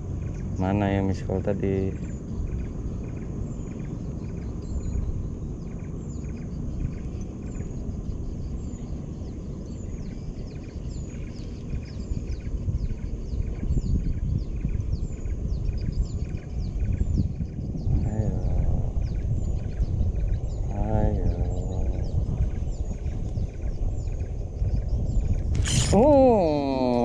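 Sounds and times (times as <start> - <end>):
low steady rumble: 0.0 - 27.0
fishing reel cranking with ticks: 25.5 - 26.1
bird calling in falling notes: 25.6 - 27.0.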